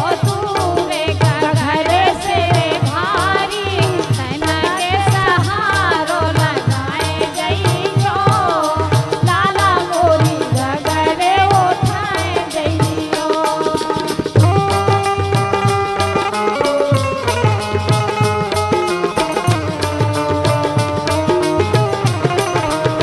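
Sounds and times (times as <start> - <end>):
woman singing folk song: 0.0 - 14.5
hand drums: 0.0 - 23.0
harmonium: 0.0 - 23.0.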